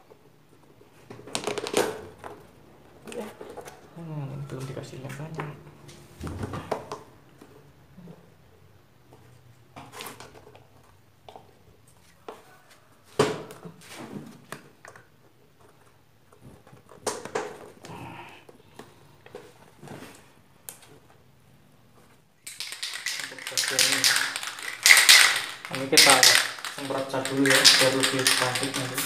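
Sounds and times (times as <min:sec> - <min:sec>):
plastic pipe pieces knocking: 0:01.1 - 0:02.4, 0:22.5 - 0:29.0.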